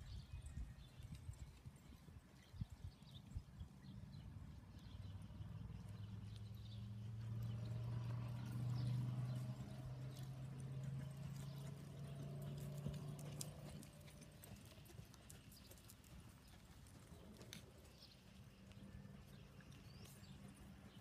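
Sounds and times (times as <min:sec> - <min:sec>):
horse hoofbeats on sand: 0:07.2 - 0:21.0.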